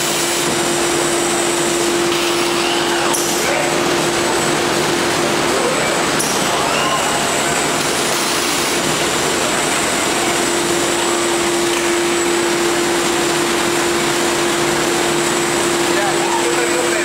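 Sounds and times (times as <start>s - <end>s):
factory machinery rushing: 0.0s - 17.0s
steady machine hum: 0.0s - 17.0s.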